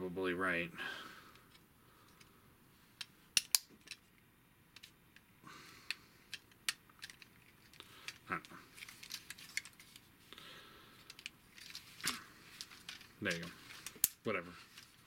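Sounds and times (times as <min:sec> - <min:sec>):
plastic toy parts clicking: 0:03.0 - 0:04.1, 0:05.9 - 0:10.0, 0:11.0 - 0:14.2.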